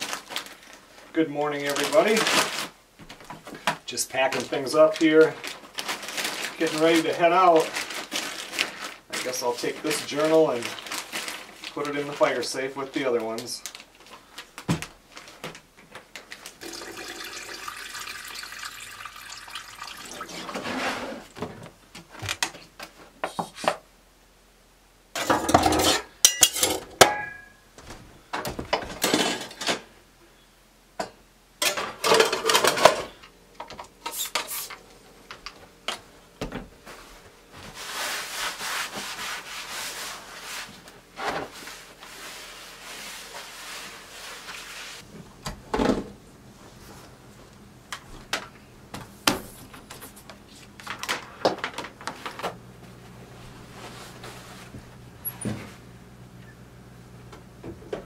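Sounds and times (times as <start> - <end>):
rubbing and rustling: 4.2 - 16.5, 36.8 - 45.2, 52.1 - 55.8
dishes clattering: 25.2 - 27.5, 28.9 - 29.8, 31.0 - 33.1.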